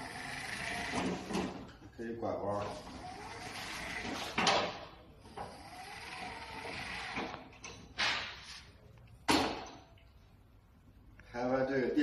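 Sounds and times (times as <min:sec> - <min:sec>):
pallet truck motor running: 0:00.0 - 0:01.6, 0:02.7 - 0:04.7, 0:05.3 - 0:07.5.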